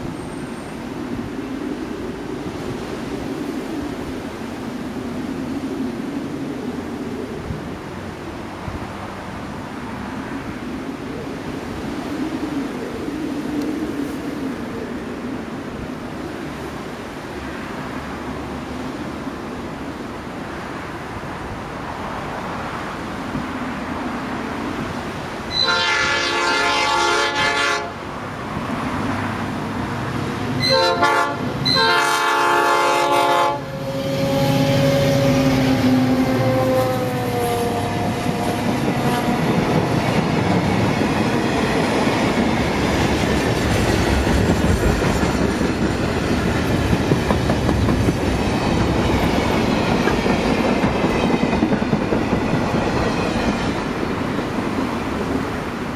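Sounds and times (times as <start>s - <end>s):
locomotive passing: 0.0s - 55.9s
locomotive horn blasts: 25.5s - 28.0s, 30.6s - 39.4s.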